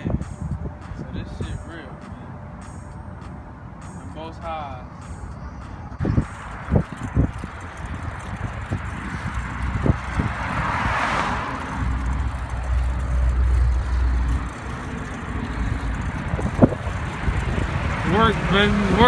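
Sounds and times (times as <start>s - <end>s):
road noise: 0.0s - 19.0s
wind rumbling on microphone: 5.4s - 19.0s.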